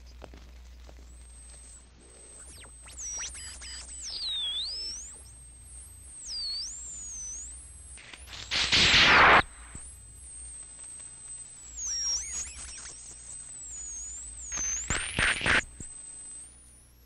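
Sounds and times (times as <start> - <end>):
faint low hum: 0.0 - 17.0
high electronic tone swooping: 2.3 - 7.6, 8.2 - 9.9, 11.7 - 15.7.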